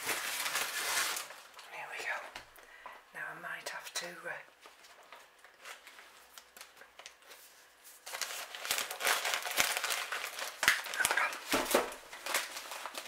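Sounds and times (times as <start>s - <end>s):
newspaper rustling and crinkling: 0.0s - 1.6s, 4.6s - 13.0s.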